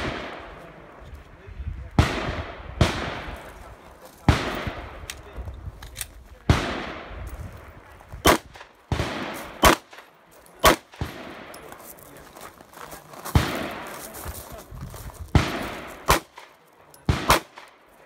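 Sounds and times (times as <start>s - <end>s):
pistol shots: 0.0s - 0.6s, 2.0s - 3.6s, 4.2s - 5.1s, 6.5s - 7.2s, 8.2s - 11.7s, 13.3s - 14.2s, 15.3s - 17.8s.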